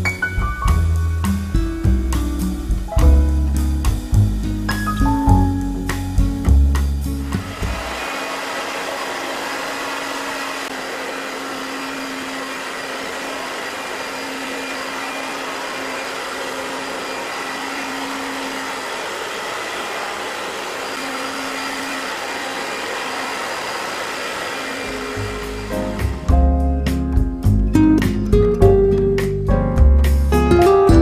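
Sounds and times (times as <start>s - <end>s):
hair dryer blowing: 6.7s - 26.4s.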